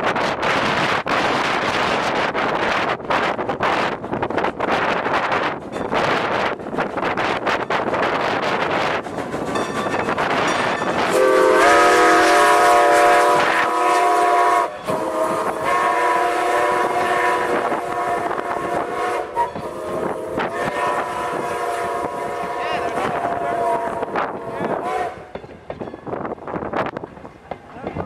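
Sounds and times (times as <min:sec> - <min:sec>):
steam train rushing past: 0:00.0 - 0:28.0
wind on microphone: 0:00.0 - 0:28.0
steam whistle blasts: 0:11.0 - 0:25.3.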